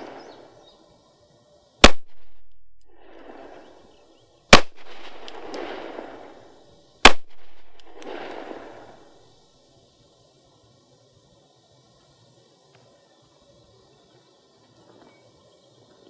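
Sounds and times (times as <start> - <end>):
pistol shots with echo: 1.8 - 2.5, 4.5 - 9.1.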